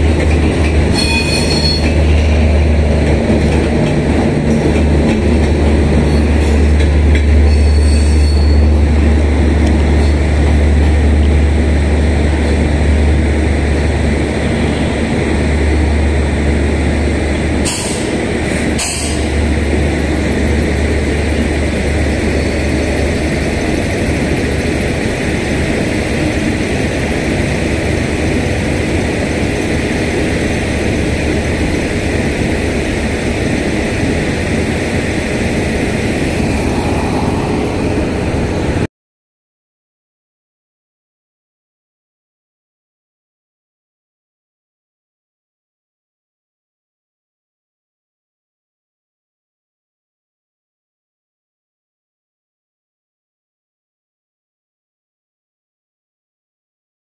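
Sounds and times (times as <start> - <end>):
train wheels rumbling on track: 0.0 - 38.9.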